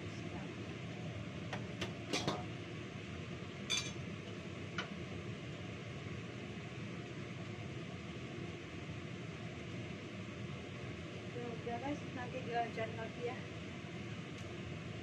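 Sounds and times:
steady background hum: 0:00.0 - 0:15.0
pans knocking on counter: 0:01.8 - 0:02.5.

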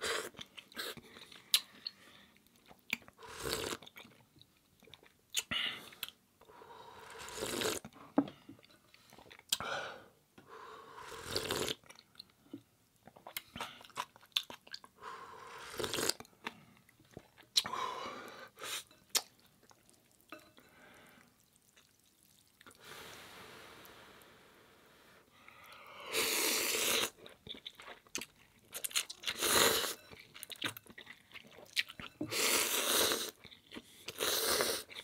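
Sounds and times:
person slurping noodles: 0:03.2 - 0:03.8, 0:07.0 - 0:07.8, 0:11.0 - 0:11.8, 0:15.4 - 0:16.2, 0:26.1 - 0:27.2, 0:29.3 - 0:30.0, 0:32.2 - 0:33.4, 0:34.1 - 0:35.0
wet chewing: 0:21.4 - 0:22.8, 0:26.9 - 0:32.2.

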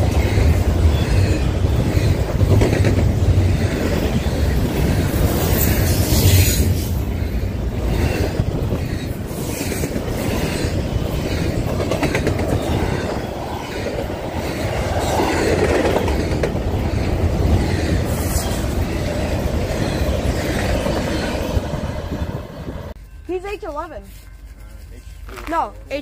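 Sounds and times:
wheels clicking over rail joints: 0:00.0 - 0:06.2, 0:07.8 - 0:21.7
train wheels rumbling on rails: 0:00.0 - 0:26.0.

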